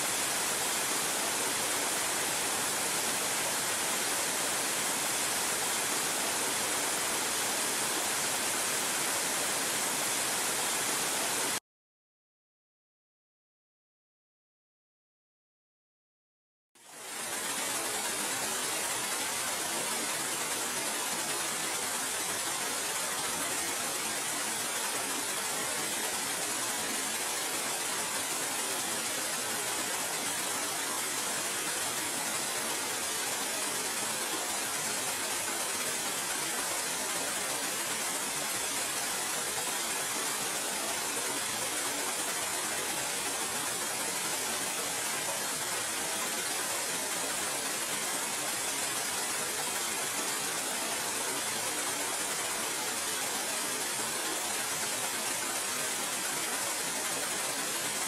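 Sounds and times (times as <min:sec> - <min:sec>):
flowing water rushing: 0:00.0 - 0:11.6, 0:16.8 - 0:58.0.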